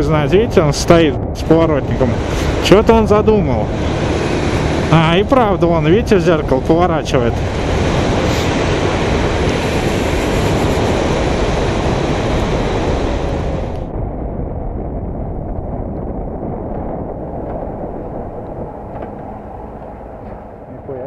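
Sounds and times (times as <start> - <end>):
rush of wind: 0.0 - 21.0
motorcycle riding on wet asphalt: 1.9 - 13.8.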